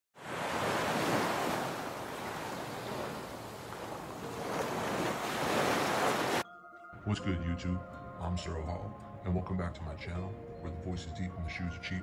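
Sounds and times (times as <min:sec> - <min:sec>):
waves breaking on a beach: 0:00.2 - 0:06.4.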